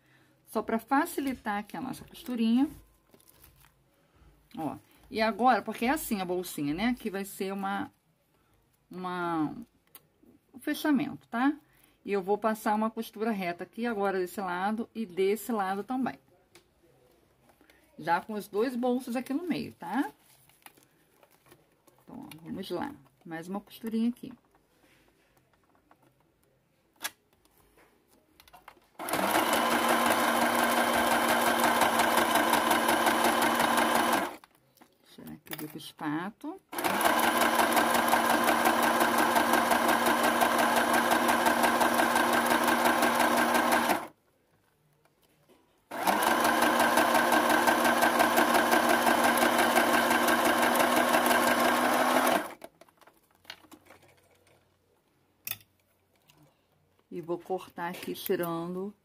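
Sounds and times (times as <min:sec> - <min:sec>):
sewing machine stitching: 0:29.0 - 0:34.4, 0:36.7 - 0:44.1, 0:45.9 - 0:52.7.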